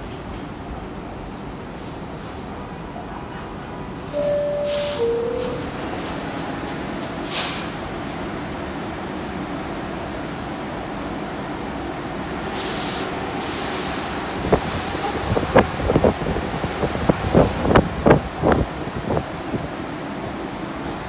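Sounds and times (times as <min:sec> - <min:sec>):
subway train rumble: 0:00.0 - 0:21.0
hiss of air: 0:04.6 - 0:07.8, 0:12.5 - 0:18.6.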